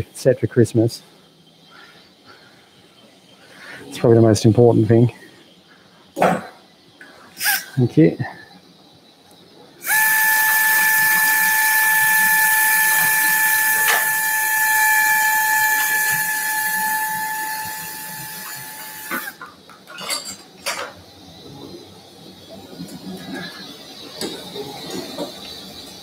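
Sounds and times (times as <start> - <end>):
power drill boring into bone: 9.8 - 19.4.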